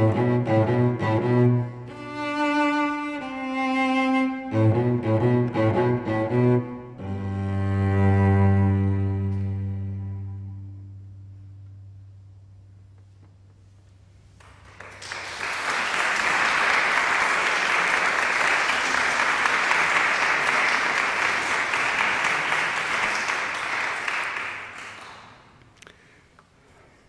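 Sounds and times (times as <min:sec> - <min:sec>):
audience applauding: 0:14.4 - 0:25.6.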